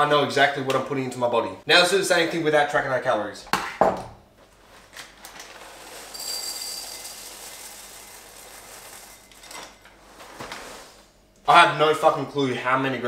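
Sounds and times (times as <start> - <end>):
dry cereal pouring into a bowl: 5.4 - 11.0.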